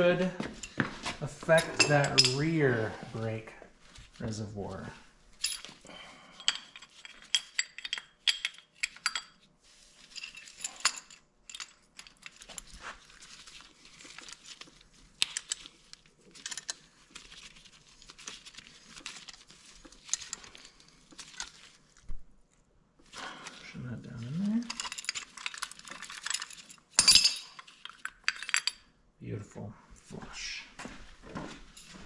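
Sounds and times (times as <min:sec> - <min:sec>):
metal parts clinking and rattling: 0:01.4 - 0:02.8, 0:05.4 - 0:05.8, 0:06.4 - 0:09.4, 0:10.0 - 0:21.9, 0:24.2 - 0:28.9.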